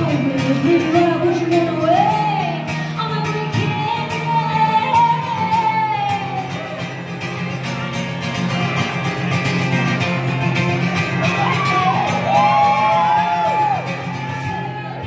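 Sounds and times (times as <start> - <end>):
woman singing: 0.0 - 7.0
strummed acoustic guitar: 0.0 - 15.0.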